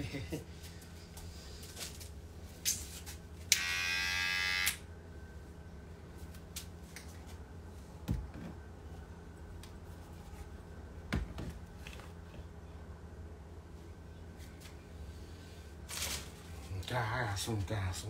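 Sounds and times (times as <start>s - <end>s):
steady low hum: 0.0s - 18.0s
loud electric buzz: 3.5s - 4.9s.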